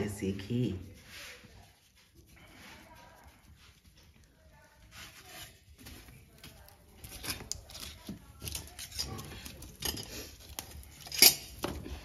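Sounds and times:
burning firewood crackling: 0:04.9 - 0:12.0.

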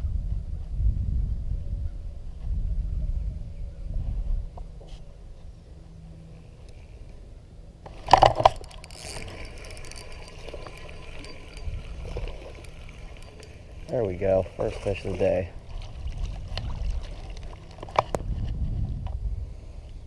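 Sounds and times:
wind rumble on microphone: 0:00.0 - 0:05.7, 0:10.4 - 0:20.0
fishing reel whirring and clicking: 0:07.8 - 0:18.5.

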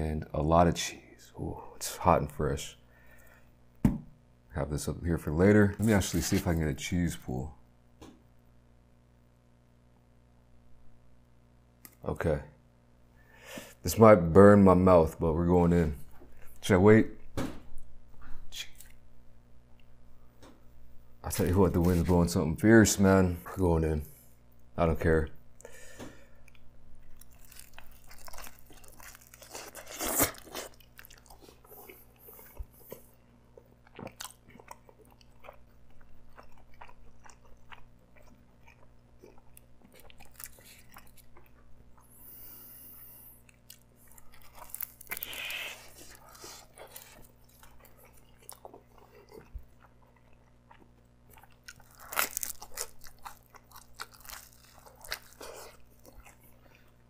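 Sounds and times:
chewing crunchy pizza crust: 0:25.6 - 0:57.0.

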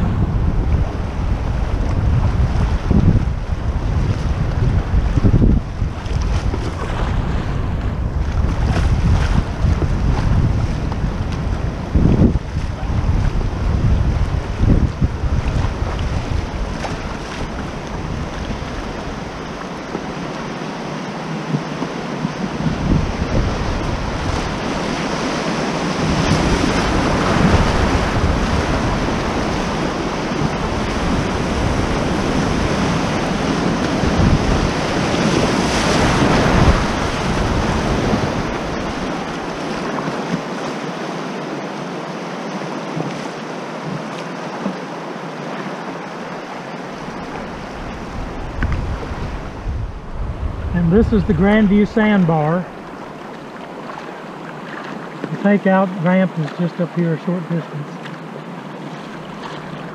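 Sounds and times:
wind buffeting microphone: 0:00.0 - 0:40.7, 0:46.4 - 0:55.4
river rapids rushing: 0:16.2 - 0:59.9.

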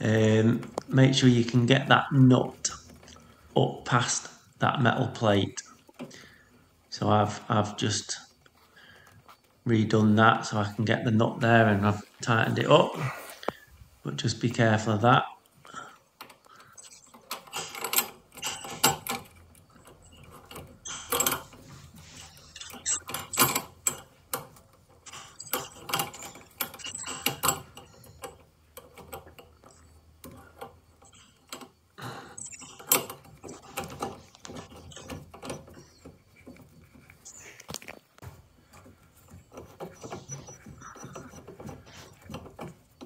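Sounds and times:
metal pipe fittings clicking and rattling: 0:16.2 - 0:43.0.

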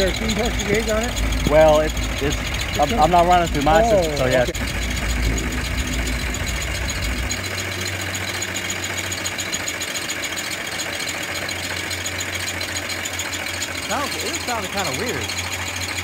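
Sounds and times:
low rumble: 0:00.0 - 0:09.5
steam engine clattering: 0:00.0 - 0:16.0.

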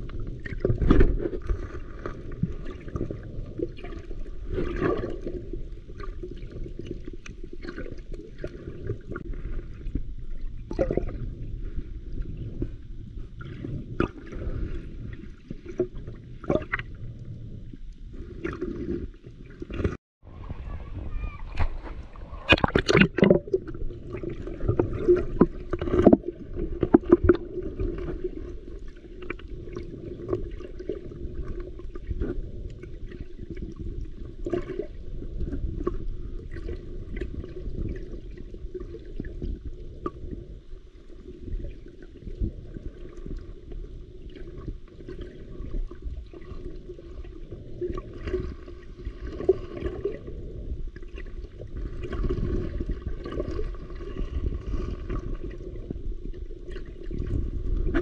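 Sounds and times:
muffled underwater rushing: 0:00.0 - 0:58.0
water splashes and knocks: 0:21.5 - 0:28.2.

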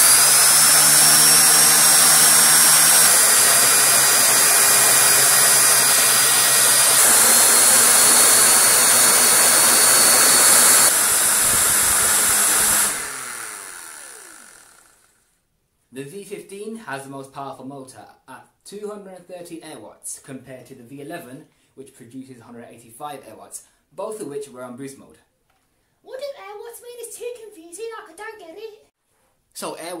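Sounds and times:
vacuum cleaner motor whine: 0:00.0 - 0:15.1.

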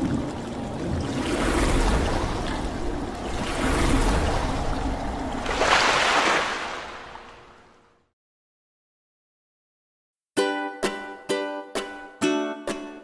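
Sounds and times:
bright water splash: 0:00.0 - 0:07.8
rushing water whoosh: 0:00.0 - 0:07.9.

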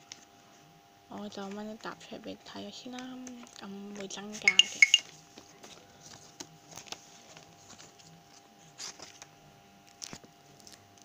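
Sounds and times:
faint steady hum: 0:00.0 - 0:11.0
paper and plastic pages rustling: 0:03.3 - 0:09.3, 0:09.9 - 0:10.8.

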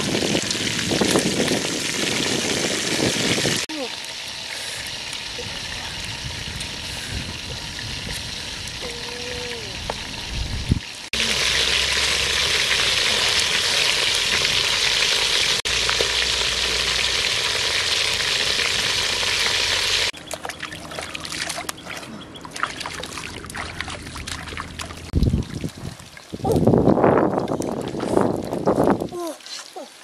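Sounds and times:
frying sizzle in oil: 0:00.0 - 0:20.2.

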